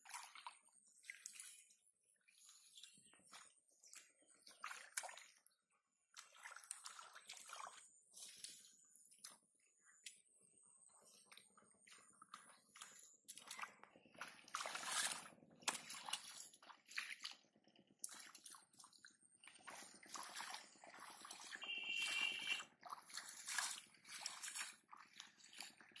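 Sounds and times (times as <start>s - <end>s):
muddy water splashing: 0.0s - 10.1s, 10.9s - 26.0s
water weed being pulled: 11.1s - 17.4s, 18.0s - 26.0s.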